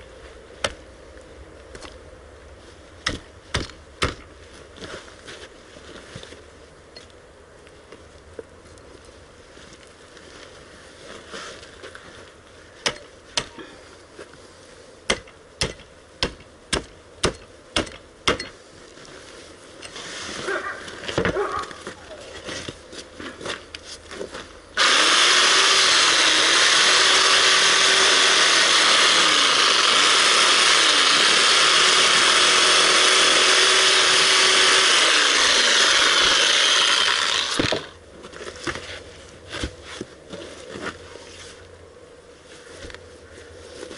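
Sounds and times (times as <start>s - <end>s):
hatchet striking skull: 3.0s - 4.3s, 15.1s - 18.5s
reciprocating saw cutting: 24.8s - 38.0s.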